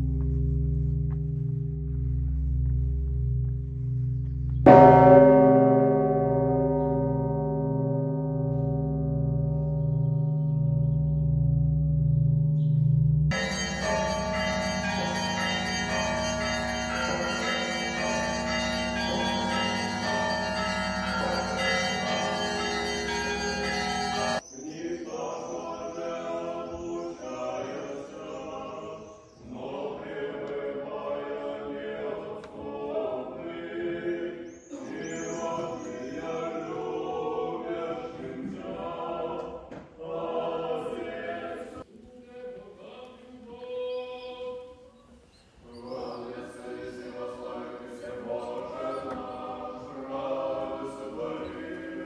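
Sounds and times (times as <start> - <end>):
bells ringing: 4.6 - 12.6, 13.3 - 24.5
men's choir chanting: 13.3 - 44.6, 45.7 - 52.0.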